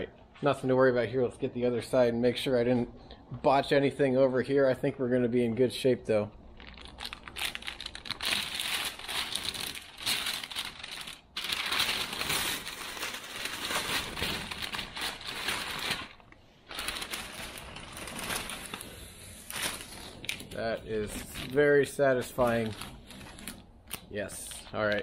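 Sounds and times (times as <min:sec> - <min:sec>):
masking paper crinkling: 0:06.5 - 0:25.0.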